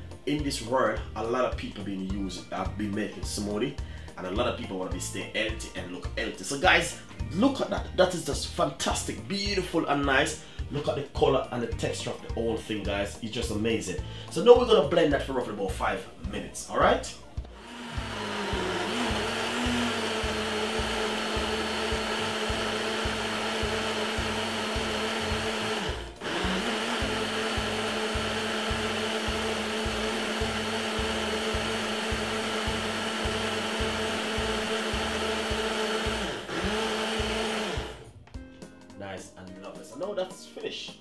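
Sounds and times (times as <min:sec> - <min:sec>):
blender motor running: 0:17.4 - 0:38.1.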